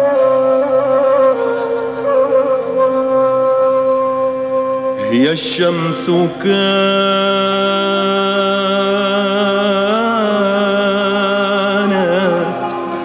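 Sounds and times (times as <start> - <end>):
sustained drone: 0.0 - 13.0.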